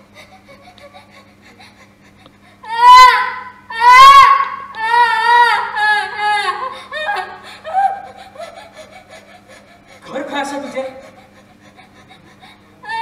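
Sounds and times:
woman wailing and sobbing: 0:00.1 - 0:13.0.

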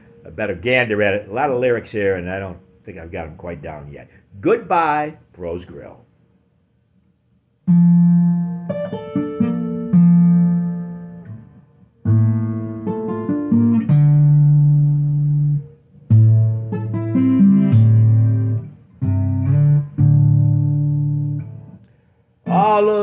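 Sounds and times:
acoustic guitar plucked chords: 0:07.6 - 0:21.8, 0:22.4 - 0:23.0.

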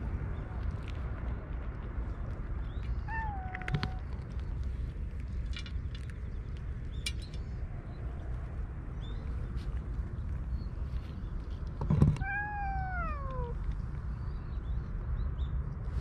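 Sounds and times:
steady low rumble: 0:00.0 - 0:16.0
cat meowing: 0:03.0 - 0:04.1, 0:12.1 - 0:13.6.

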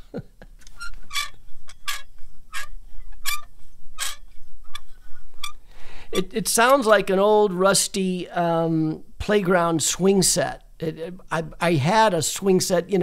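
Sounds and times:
picture frame squeaking: 0:00.6 - 0:05.6.

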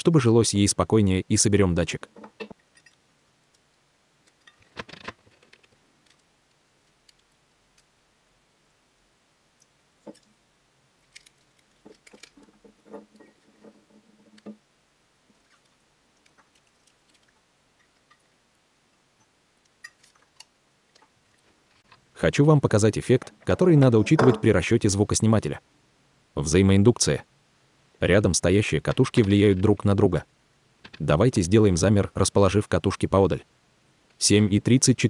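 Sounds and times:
small clicks and rustles: 0:02.1 - 0:07.9, 0:11.0 - 0:14.6, 0:15.3 - 0:18.4, 0:19.2 - 0:22.1.

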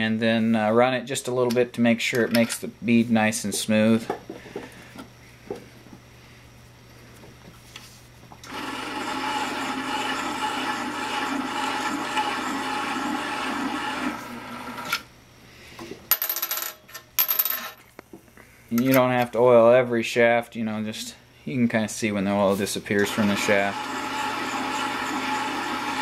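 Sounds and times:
electric motor humming: 0:08.5 - 0:14.8, 0:23.0 - 0:26.0.

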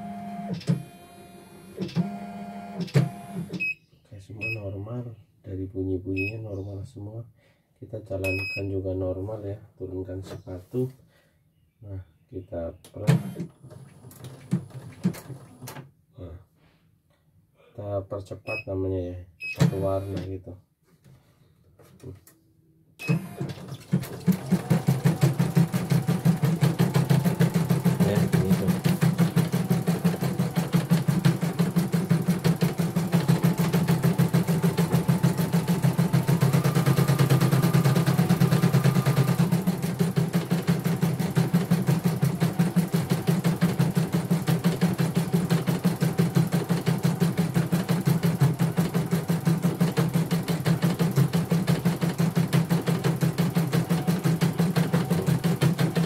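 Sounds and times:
embroidery machine stitching: 0:23.0 - 0:56.0.

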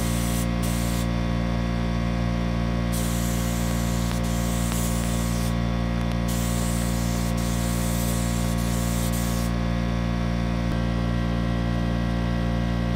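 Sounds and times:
spray gun hissing: 0:00.0 - 0:01.1, 0:02.9 - 0:05.6, 0:06.2 - 0:09.6
steady machine hum: 0:00.0 - 0:12.9.

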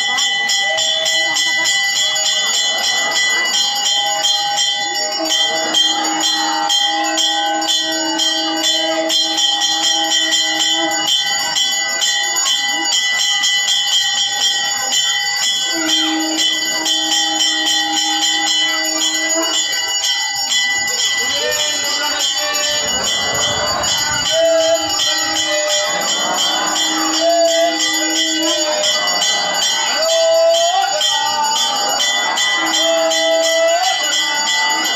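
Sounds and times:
bells rung rapidly: 0:00.0 - 0:34.9
long held tone: 0:20.2 - 0:29.2.

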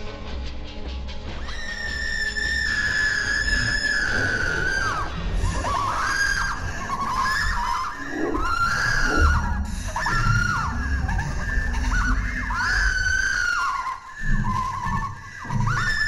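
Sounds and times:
low rumbling drone: 0:00.0 - 0:13.5
high-pitched screaming: 0:01.4 - 0:16.0.

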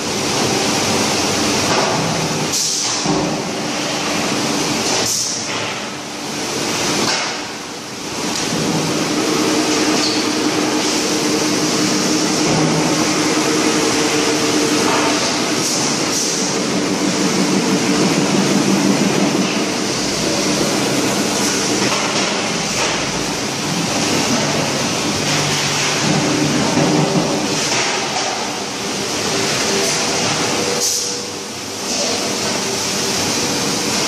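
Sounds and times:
production line machinery din: 0:00.0 - 0:34.0.

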